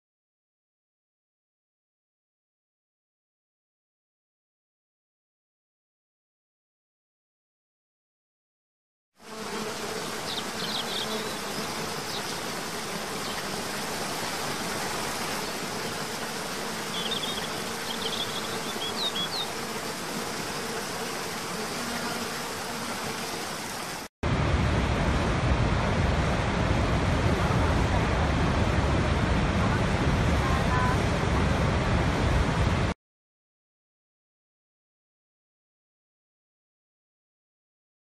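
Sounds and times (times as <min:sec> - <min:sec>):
falling water rushing: 0:10.1 - 0:21.4, 0:22.4 - 0:32.9.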